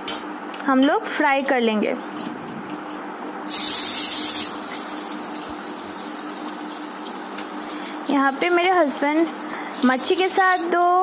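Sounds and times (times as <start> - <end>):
loud high hiss: 3.4 - 4.8
fish frying in hot oil: 3.5 - 10.8.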